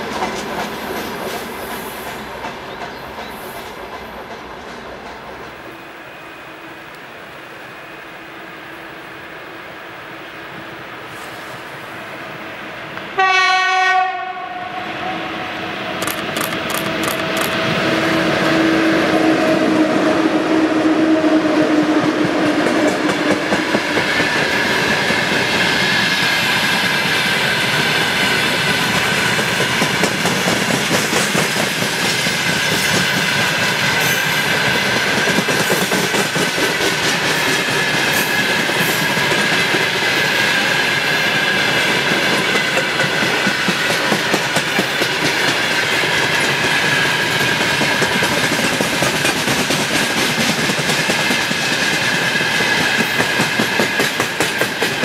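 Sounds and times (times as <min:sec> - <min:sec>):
locomotive horn blast: 0:13.1 - 0:15.6
locomotive drone: 0:14.2 - 0:55.0.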